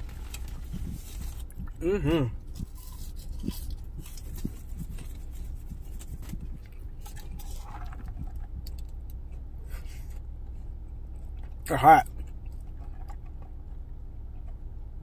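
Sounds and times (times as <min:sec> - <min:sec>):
chewing and mouth noises: 0:00.0 - 0:14.6
sipping through a straw: 0:02.4 - 0:08.3.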